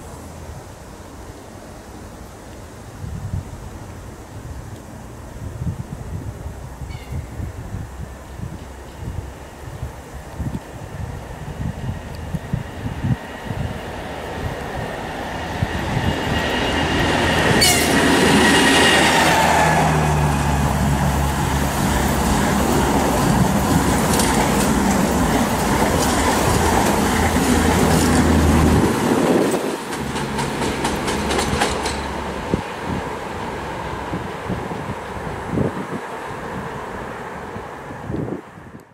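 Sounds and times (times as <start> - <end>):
locomotive whine passing: 10.8 - 38.6
train carriages rumbling: 11.0 - 35.8.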